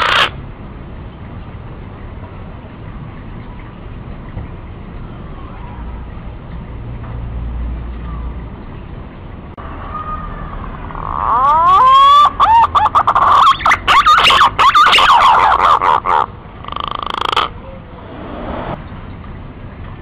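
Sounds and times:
green pigeon whistling song: 0.0s - 0.3s, 11.0s - 17.8s.

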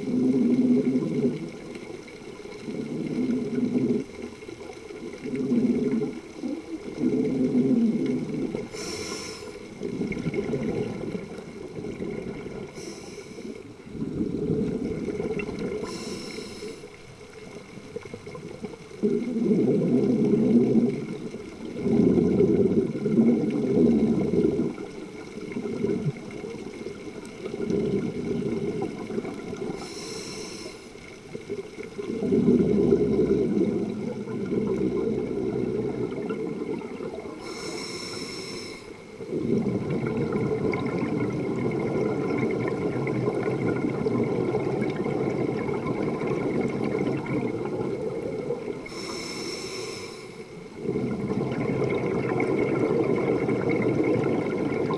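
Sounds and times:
underwater exhale bubbling: 0.0s - 54.9s
regulator inhalation hiss: 8.7s - 9.7s, 12.7s - 13.7s, 15.8s - 17.0s, 29.8s - 31.0s, 37.4s - 39.0s, 48.8s - 50.6s.

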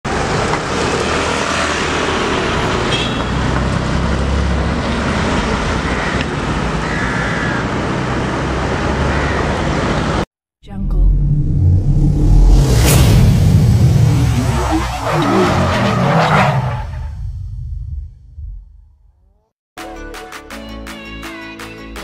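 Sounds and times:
traffic passing: 0.1s - 10.3s.

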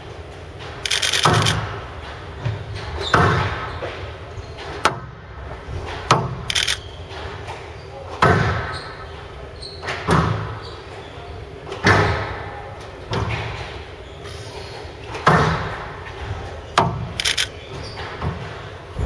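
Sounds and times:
ball smacking court walls: 0.6s - 6.5s, 7.1s - 9.0s.

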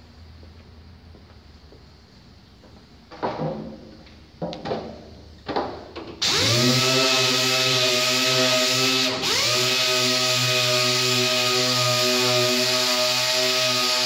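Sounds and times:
pneumatic sander whining: 6.2s - 14.0s.

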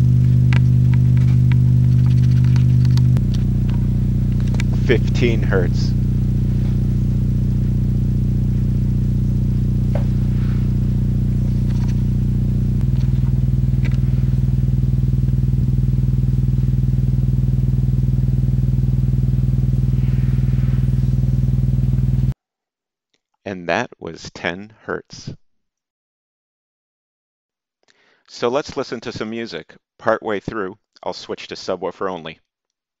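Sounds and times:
low buzzing square-wave tone: 0.0s - 22.4s.

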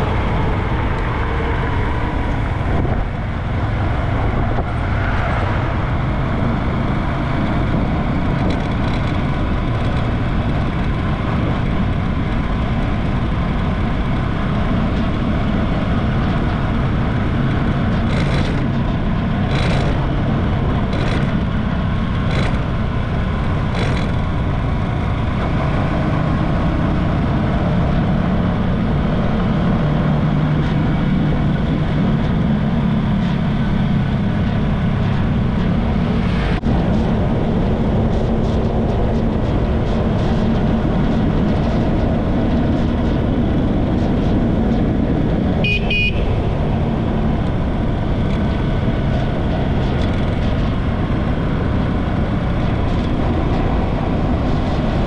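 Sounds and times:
wind rushing: 0.0s - 8.6s
motorcycle engine: 0.0s - 55.0s.

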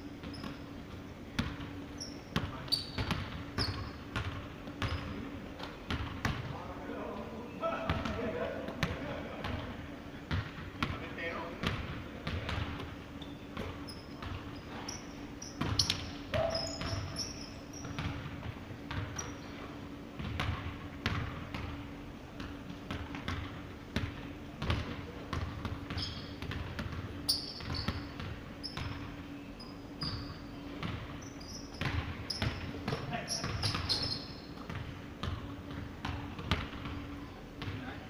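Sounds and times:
sneakers squeaking: 0.0s - 38.0s
steady low hum: 0.0s - 38.0s
basketball bouncing on wooden floor: 13.6s - 14.8s, 15.6s - 17.2s, 17.8s - 19.3s, 20.2s - 21.8s, 22.4s - 29.1s, 30.8s - 31.1s, 31.7s - 37.0s.

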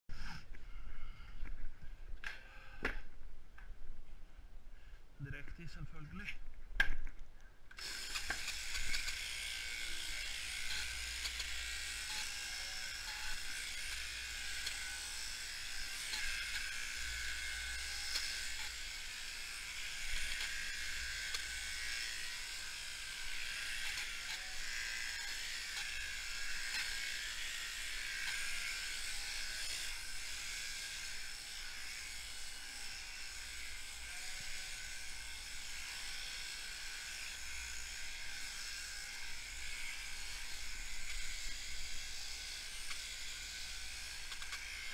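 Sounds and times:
electric shears buzzing: 7.7s - 44.9s.

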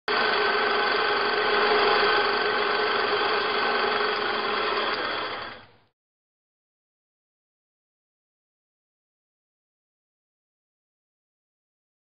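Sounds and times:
film projector whirring: 0.1s - 5.8s.

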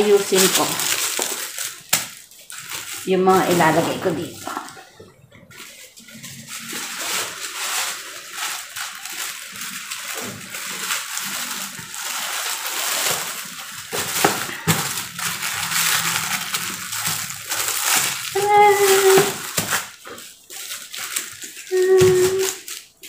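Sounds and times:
plastic bag crinkling: 0.0s - 23.0s
plastic bag snap: 0.2s - 2.9s, 9.6s - 20.1s.

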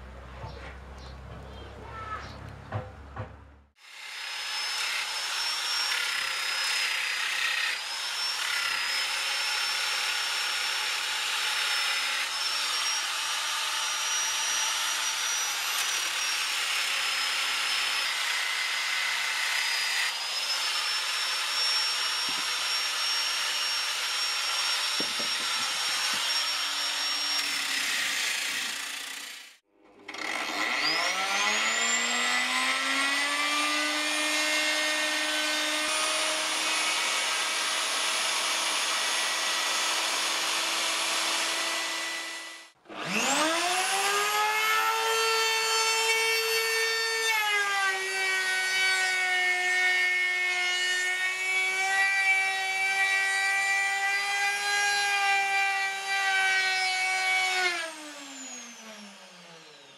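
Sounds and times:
angle grinder sanding wood: 3.8s - 58.5s
router motor whining: 3.8s - 59.9s.

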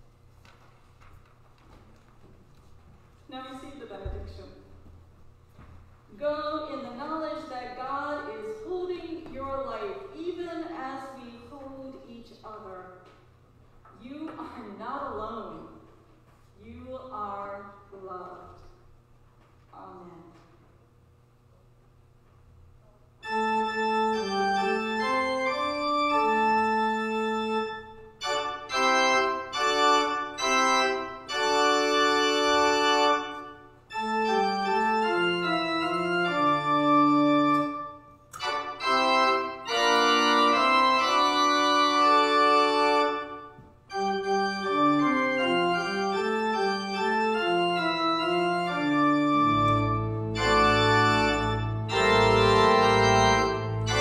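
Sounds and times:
church organ chords: 23.2s - 54.0s
deep bass organ note: 43.9s - 54.0s.

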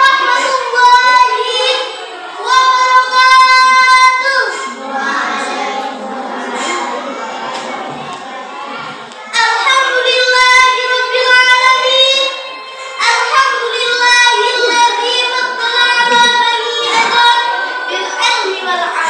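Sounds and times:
girl singing: 0.0s - 6.9s, 9.3s - 19.0s.

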